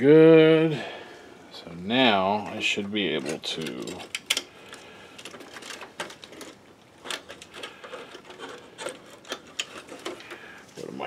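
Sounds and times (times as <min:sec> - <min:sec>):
projector parts clicking and rubbing: 0:02.5 - 0:11.0.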